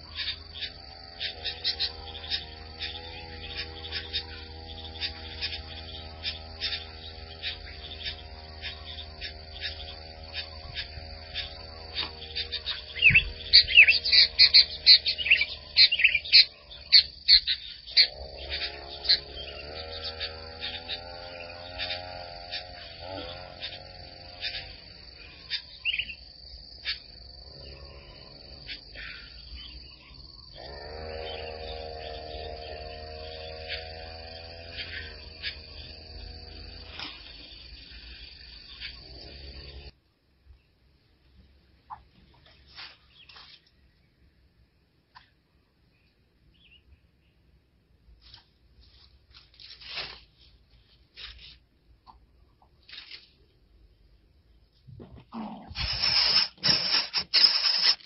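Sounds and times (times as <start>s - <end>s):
insects trilling: 0.0s - 58.0s
dry grass rustling: 42.4s - 43.8s, 48.1s - 51.9s, 52.8s - 53.6s, 55.0s - 58.0s.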